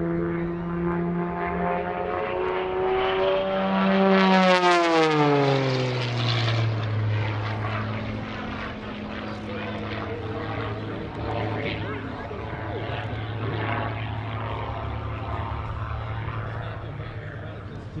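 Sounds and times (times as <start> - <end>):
propeller plane engine passing: 0.0 - 18.0.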